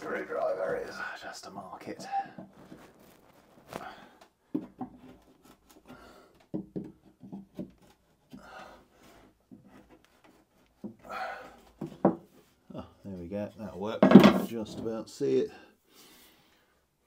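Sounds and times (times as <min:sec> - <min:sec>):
screwdriver tapping on plywood: 0:06.5 - 0:07.8.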